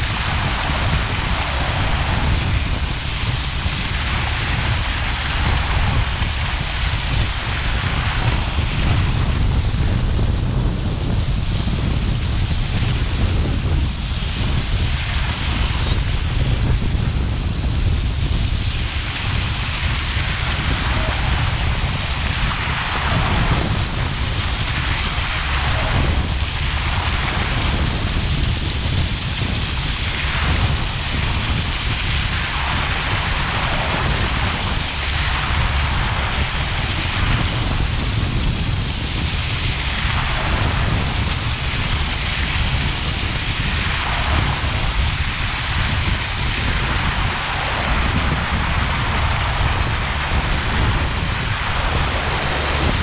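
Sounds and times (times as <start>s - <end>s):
water rushing past hull: 0.0s - 53.0s
wind buffeting microphone: 0.0s - 53.0s.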